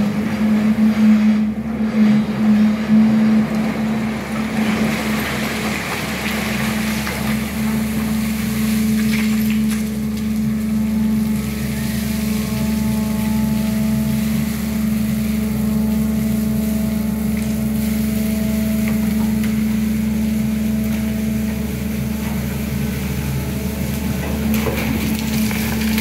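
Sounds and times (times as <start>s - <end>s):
excavator diesel engine running: 0.0s - 26.0s
steady mechanical whine: 0.0s - 26.0s.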